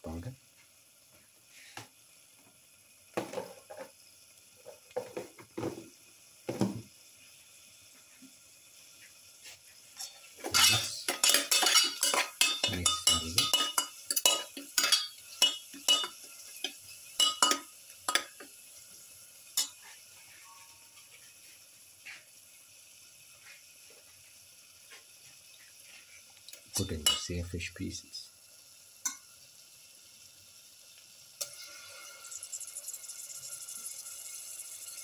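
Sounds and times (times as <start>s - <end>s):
metal spatula scraping metal pot: 10.5s - 16.2s.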